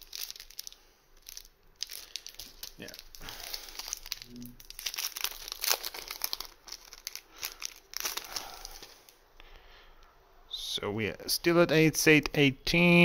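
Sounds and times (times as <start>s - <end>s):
plastic card sleeves crinkling: 0.0s - 9.2s.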